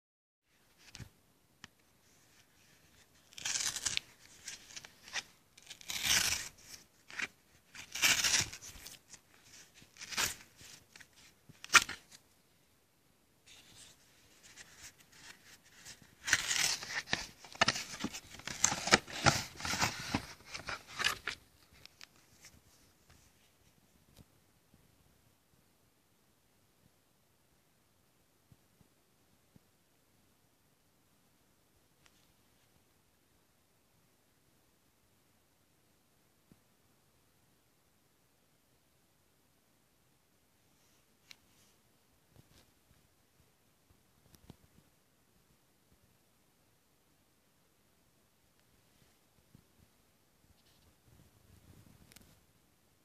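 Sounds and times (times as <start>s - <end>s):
cardboard envelope tearing: 3.2s - 12.1s, 14.4s - 21.4s.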